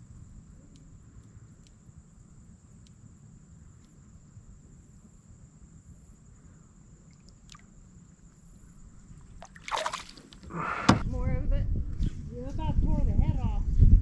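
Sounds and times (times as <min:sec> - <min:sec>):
water trickling and dripping: 0:07.0 - 0:08.3
water splashing: 0:07.1 - 0:07.7, 0:09.3 - 0:10.5.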